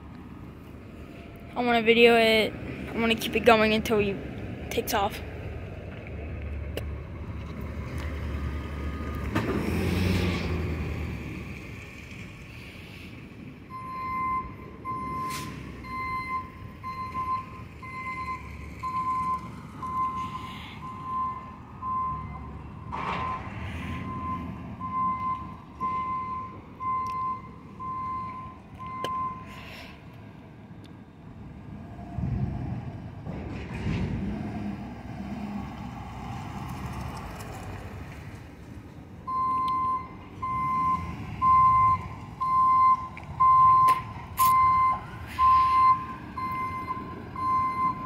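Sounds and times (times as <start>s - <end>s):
reversing alarm beeping: 13.7s - 29.6s, 39.3s - 48.0s.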